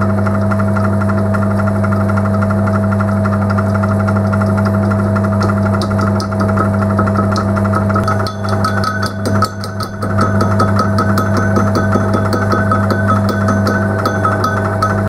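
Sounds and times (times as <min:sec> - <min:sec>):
electric motor humming: 0:00.0 - 0:15.0
lathe tool chattering: 0:00.0 - 0:15.0
metal casting ringing: 0:05.2 - 0:15.0.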